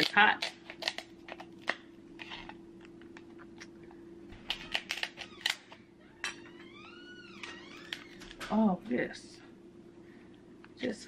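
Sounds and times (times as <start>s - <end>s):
crab shell cracking: 0.0s - 3.8s.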